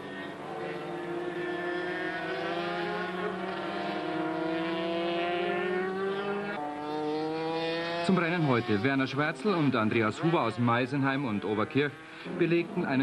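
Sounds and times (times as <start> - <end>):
two-stroke engine at full throttle: 0.0 - 8.9.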